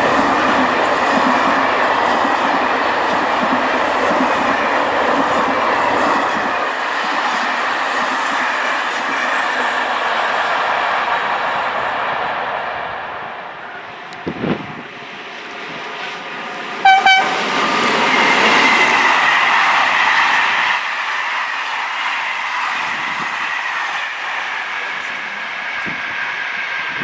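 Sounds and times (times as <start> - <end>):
passenger train rolling past: 0.0 - 27.0
train horn blast: 16.8 - 17.4.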